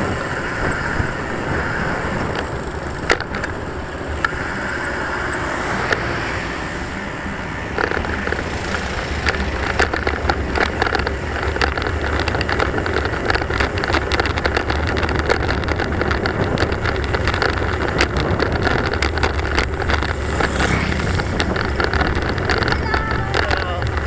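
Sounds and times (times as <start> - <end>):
bicycle clicks and rattles: 0.0 - 24.0
wind and rolling rumble: 0.0 - 24.0.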